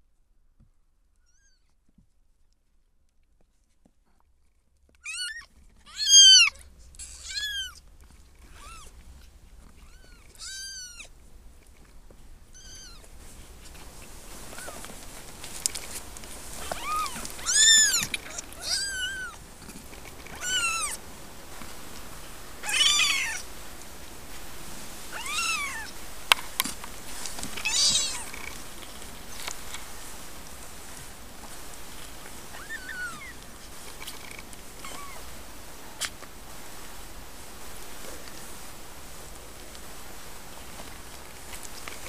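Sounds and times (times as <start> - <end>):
kittens mewing: 5.0 - 7.8, 8.4 - 9.0, 9.7 - 11.2, 12.5 - 13.1, 14.4 - 15.0, 16.5 - 21.0, 22.6 - 23.5, 25.1 - 26.0, 27.5 - 28.6, 32.5 - 33.4, 34.0 - 36.1.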